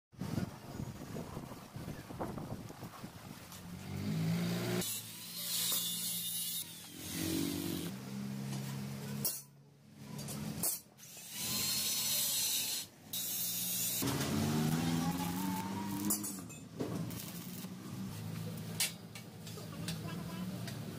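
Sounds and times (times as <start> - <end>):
angle grinder cutting metal: 4.6 - 7.9, 11.0 - 17.8.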